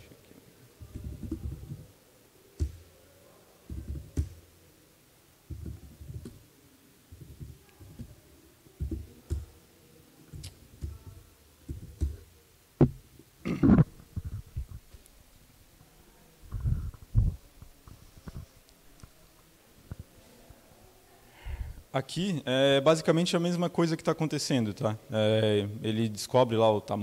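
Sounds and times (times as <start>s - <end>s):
laptop keyboard typing: 0.8s - 1.9s, 2.6s - 2.9s, 3.7s - 4.5s, 5.5s - 6.4s, 7.1s - 8.2s, 8.8s - 9.6s, 10.3s - 12.3s.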